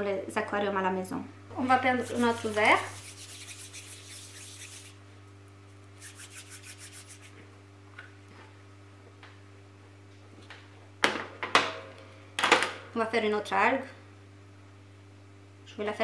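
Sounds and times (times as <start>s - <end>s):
steady low hum: 1.1s - 10.0s
hands rubbing together: 2.0s - 5.0s, 5.8s - 7.4s.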